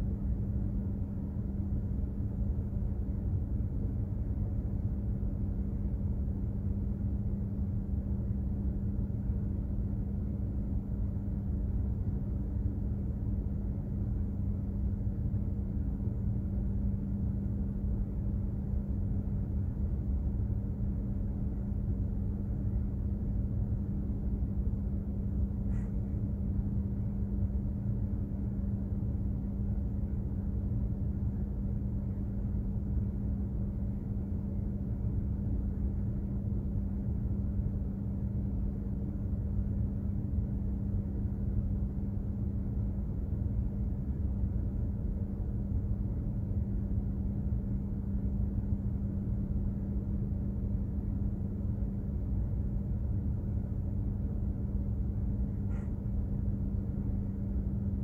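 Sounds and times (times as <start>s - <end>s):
constant hum: 0.0s - 58.0s
ship machinery low rumble: 0.0s - 58.0s
faint click: 55.6s - 56.1s.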